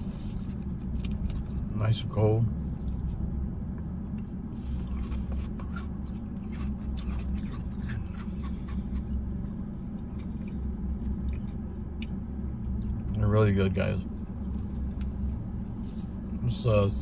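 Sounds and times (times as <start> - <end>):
car cabin hum: 0.0 - 17.0
eating with plastic spoon: 4.5 - 12.2.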